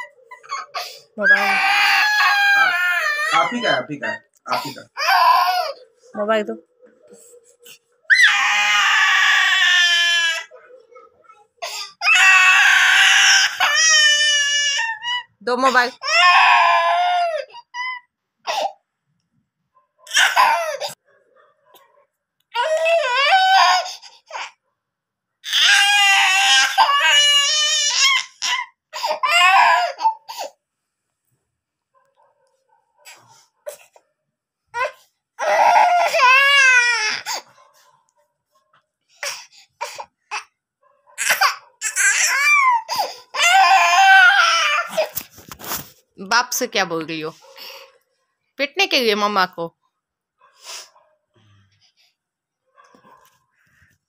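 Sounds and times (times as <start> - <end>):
toddler crying: 0.0 - 3.9, 4.6 - 5.9, 8.1 - 15.3, 16.0 - 18.7, 20.1 - 21.0, 22.5 - 24.6, 25.4 - 30.5, 34.8 - 37.5, 41.2 - 45.2.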